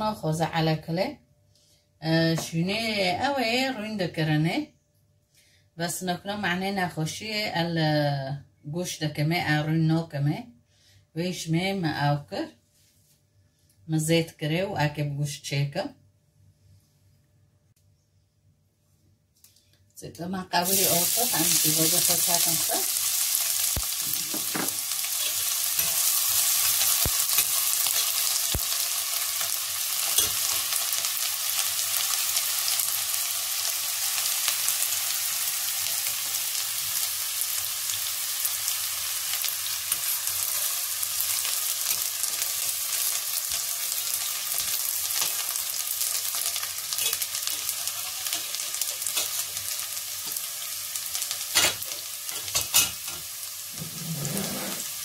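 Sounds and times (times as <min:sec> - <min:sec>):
onions sizzling in oil: 0:20.6 - 0:55.0.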